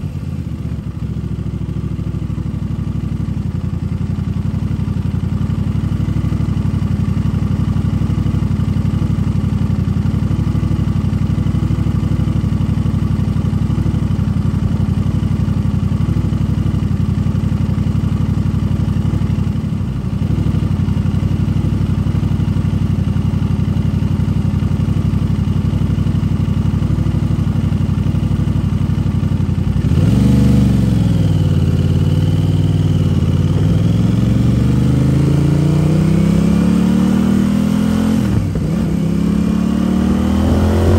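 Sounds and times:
motorcycle engine revving: 25.8s - 40.9s.

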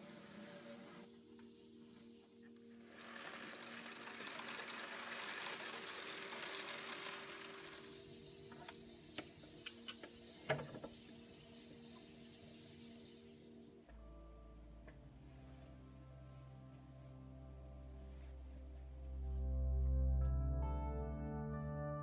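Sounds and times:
aquarium pump humming: 2.6s - 13.8s.

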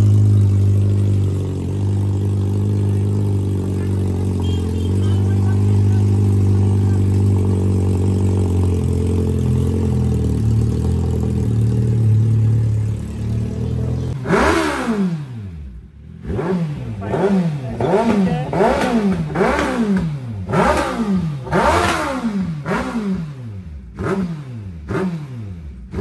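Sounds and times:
motorcycle engine running and revving: 0.0s - 26.0s.

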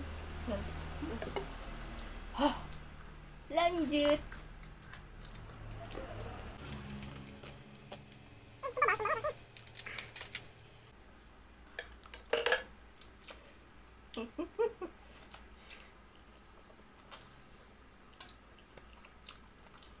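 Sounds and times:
noodles slurping and chewing: 4.0s - 10.0s, 15.1s - 20.0s.

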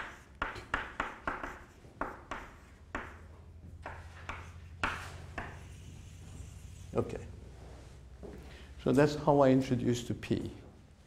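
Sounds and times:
chalk tapping and scratching on blackboard: 0.0s - 6.9s.

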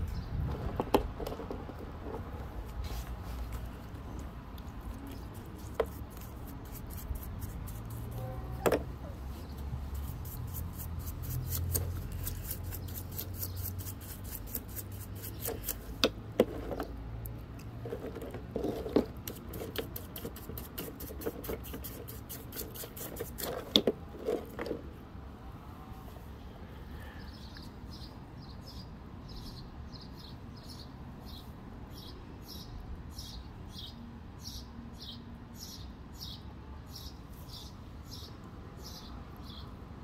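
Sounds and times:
brush scrubbing wet rock: 4.7s - 8.2s, 9.8s - 16.8s, 17.8s - 24.8s.

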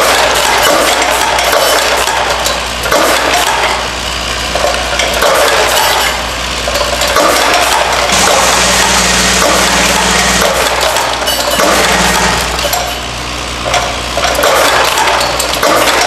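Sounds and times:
low machine hum: 8.1s - 14.3s.

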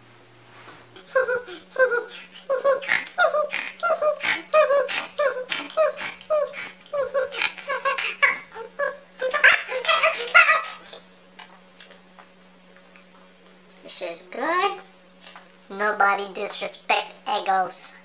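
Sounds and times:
steady low hum: 0.0s - 18.0s
man making high-pitched nonsense sounds: 1.0s - 11.0s.

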